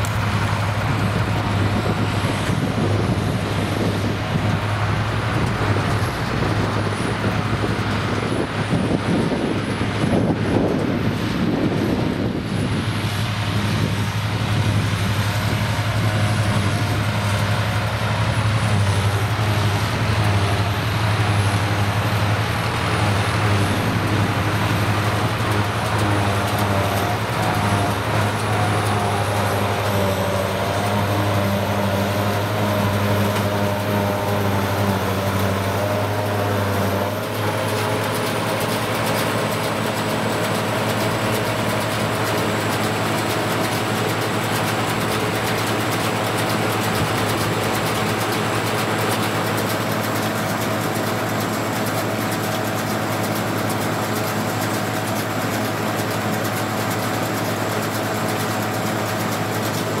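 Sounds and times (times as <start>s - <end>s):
forage harvester running: 0.0s - 60.0s
tractor diesel engines running: 0.0s - 60.0s.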